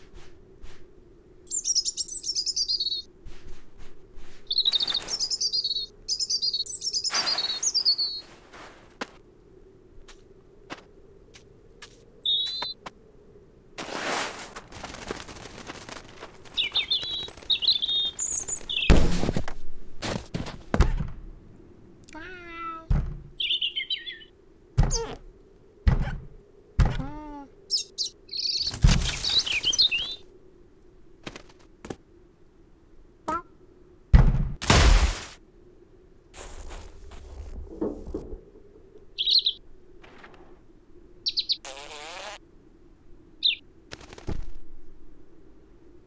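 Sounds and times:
scuffling noise: 0:13.8 - 0:16.6, 0:36.4 - 0:38.2
cartoon cat voice: 0:22.1 - 0:22.9, 0:26.9 - 0:27.5, 0:33.3 - 0:33.5
dull thuds against wooden door: 0:22.9 - 0:23.3, 0:25.8 - 0:27.1.

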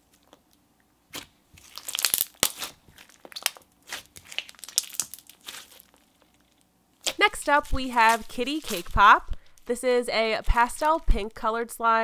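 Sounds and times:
slime squishing and crackling: 0:01.1 - 0:09.8, 0:10.4 - 0:11.4.

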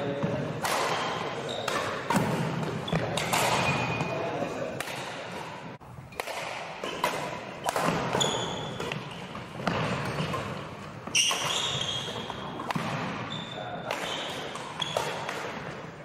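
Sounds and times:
rackets striking shuttlecock: 0:00.2 - 0:16.0
shoes squeaking on wooden floor: 0:08.1 - 0:12.6.

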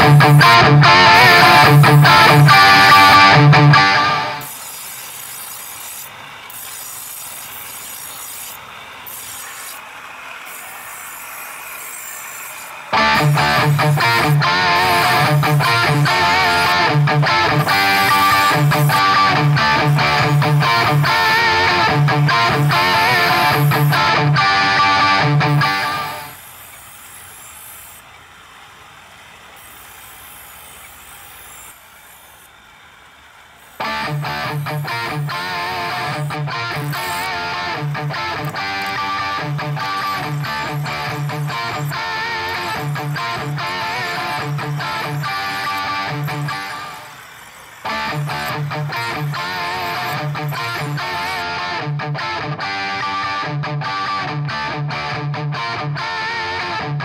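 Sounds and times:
knife grinding on stone wheel: 0:04.4 - 0:24.2, 0:33.6 - 0:51.5.

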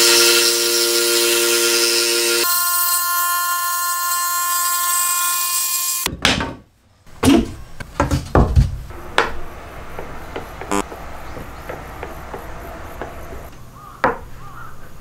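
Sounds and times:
wooden knocks and clacks: 0:07.2 - 0:14.2.

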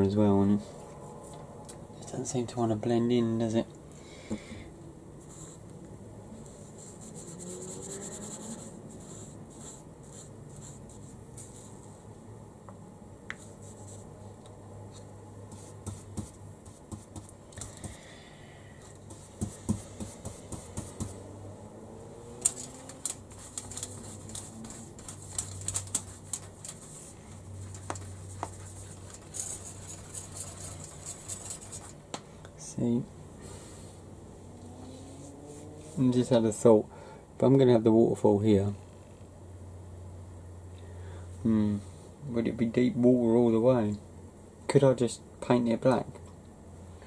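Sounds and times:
paintbrush scratching and dabbing: 0:06.4 - 0:12.1, 0:13.4 - 0:14.3, 0:14.9 - 0:18.0, 0:18.9 - 0:21.2, 0:22.4 - 0:32.0.

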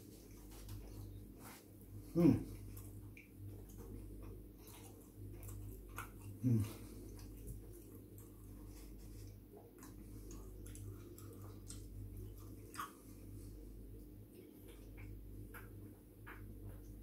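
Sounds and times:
low steady hum: 0:00.0 - 0:17.0
person chewing: 0:00.1 - 0:17.0
person humming mm: 0:02.1 - 0:02.5, 0:06.4 - 0:06.8.

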